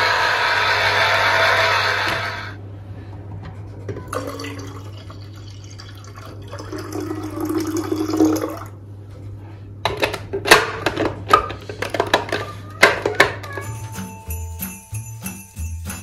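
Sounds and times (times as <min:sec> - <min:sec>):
juice pouring into glass carafe: 0:04.0 - 0:08.8.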